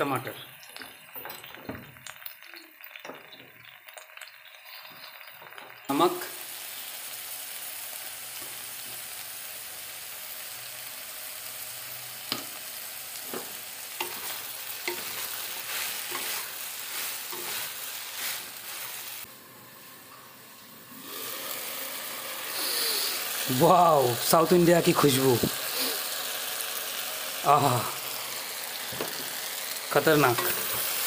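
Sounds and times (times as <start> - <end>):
vegetables sizzling in oil: 0.0 - 31.0
wooden spatula scraping a pan: 13.2 - 19.3.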